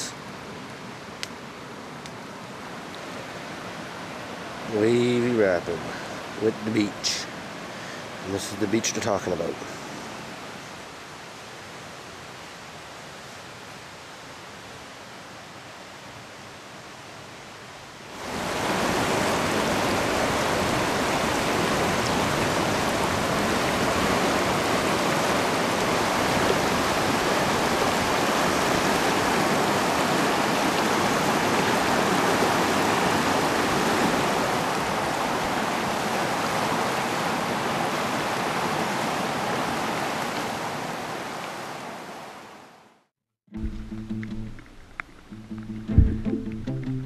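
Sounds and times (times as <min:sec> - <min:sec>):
river rapids rushing: 0:02.4 - 0:15.3, 0:18.0 - 0:42.7.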